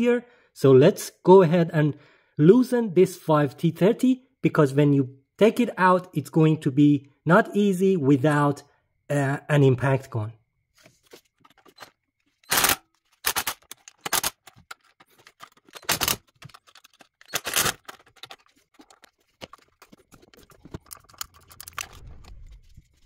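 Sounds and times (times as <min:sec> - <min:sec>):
faint handling noises: 0:10.7 - 0:23.0.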